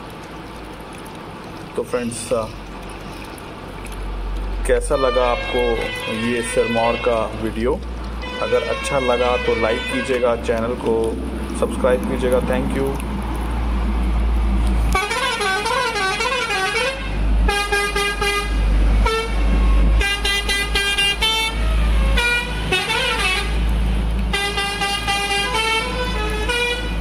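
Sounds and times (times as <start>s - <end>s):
low engine rumble: 0.0s - 27.0s
truck musical horn: 4.9s - 7.4s, 8.2s - 10.4s, 14.9s - 23.6s, 24.3s - 27.0s.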